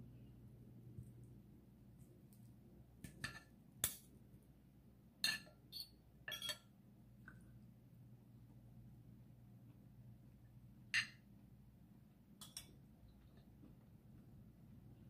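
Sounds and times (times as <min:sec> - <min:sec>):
faint room hum: 0:00.0 - 0:15.0
cutlery clinking on a plate: 0:05.2 - 0:05.6, 0:06.3 - 0:06.7, 0:11.0 - 0:11.2.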